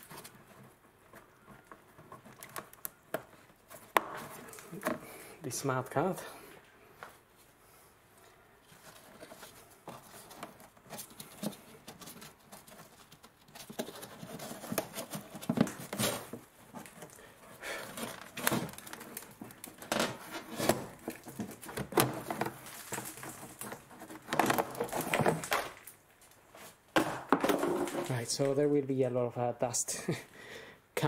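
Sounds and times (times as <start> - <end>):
plastic scraping and rustling: 0.0 - 5.2, 8.2 - 28.7.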